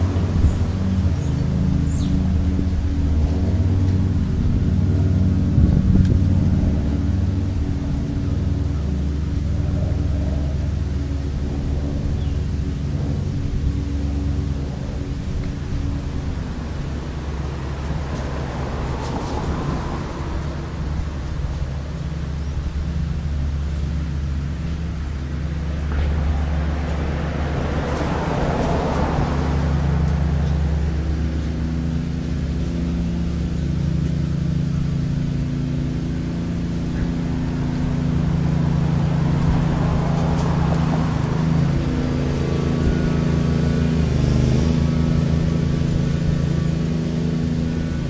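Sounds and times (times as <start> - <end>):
cars passing: 0.0 - 48.0
steady low hum: 0.0 - 48.0.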